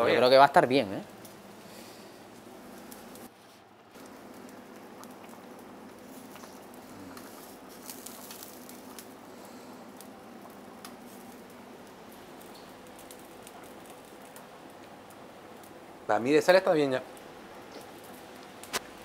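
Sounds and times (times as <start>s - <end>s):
steady low hum: 0.0s - 19.0s
stew bubbling and popping: 2.4s - 16.1s.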